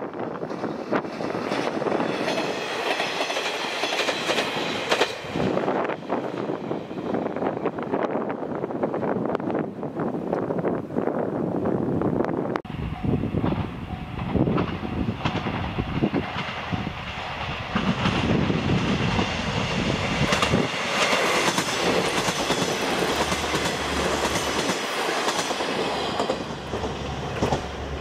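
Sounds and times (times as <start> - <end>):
train wheels clacking over rail joints: 0.5 - 5.5, 13.4 - 19.2, 20.2 - 27.8.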